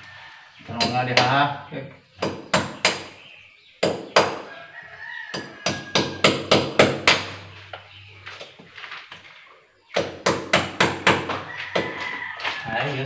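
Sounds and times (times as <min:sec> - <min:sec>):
rooster crowing: 0:00.0 - 0:00.6, 0:04.4 - 0:06.5, 0:11.2 - 0:13.0.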